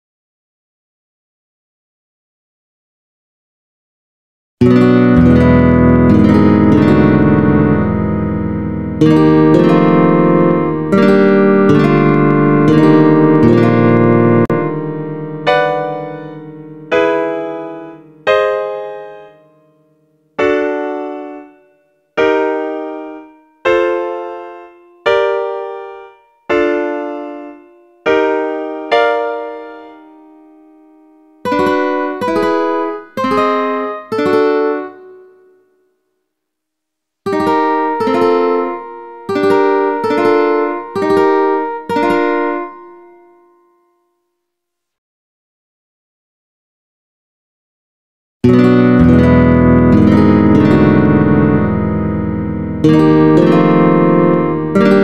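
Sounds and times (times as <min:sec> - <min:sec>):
ukulele chords: 0:04.6 - 0:19.3, 0:31.5 - 0:35.1, 0:37.3 - 0:43.3, 0:48.4 - 0:55.0
piano chords ringing out: 0:04.6 - 0:35.6, 0:37.3 - 0:44.3, 0:48.4 - 0:55.0.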